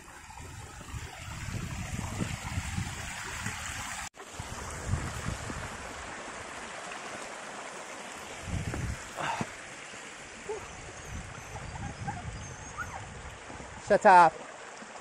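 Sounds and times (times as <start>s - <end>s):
water rushing over rocks: 0.0s - 15.0s
wind buffeting microphone: 0.2s - 6.2s, 8.3s - 9.1s, 10.5s - 13.9s.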